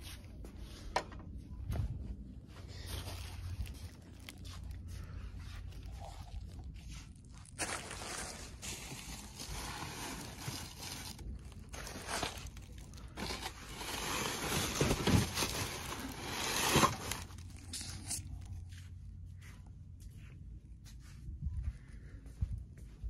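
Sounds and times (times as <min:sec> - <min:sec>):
paper pinatas rustling and scraping: 0:02.6 - 0:18.8.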